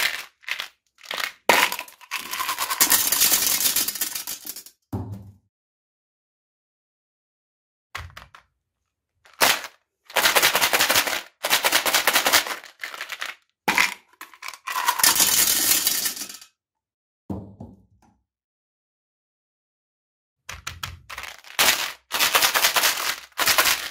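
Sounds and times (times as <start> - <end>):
gum pellets rattling in plastic bottle: 0.0 - 4.7, 9.3 - 16.4, 21.0 - 23.9
pellets pouring into toilet bowl: 0.0 - 4.7, 9.3 - 16.4, 21.1 - 23.9.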